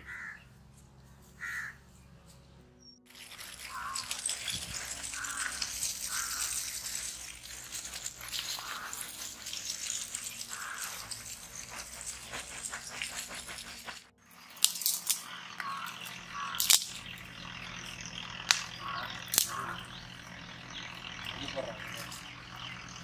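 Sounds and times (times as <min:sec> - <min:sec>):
charcoal pouring from a sack: 0:03.1 - 0:15.2
charcoal fire burning: 0:03.1 - 0:22.8.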